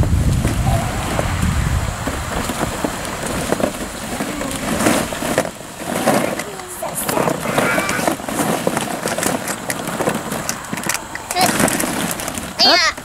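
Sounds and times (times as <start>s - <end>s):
wind rumble on microphone: 0.0s - 13.0s
plastic balls clattering: 2.1s - 13.0s.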